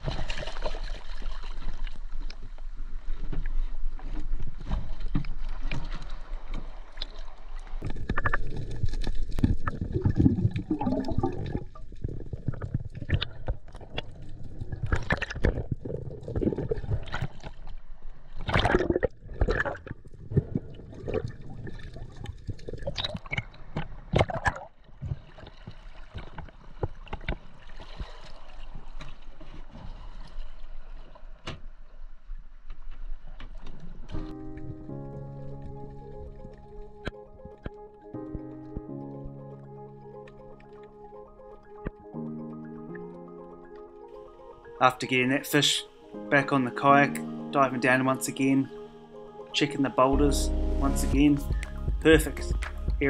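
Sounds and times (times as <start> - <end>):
underwater bubbling: 0.0 - 31.2, 34.0 - 53.0
water splashes: 0.0 - 32.0
water sloshing and gurgling: 0.0 - 53.0.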